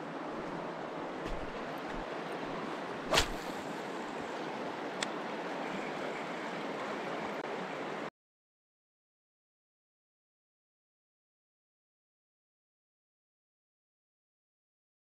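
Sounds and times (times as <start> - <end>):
river water rushing: 0.0 - 8.1
faint click: 5.0 - 5.2.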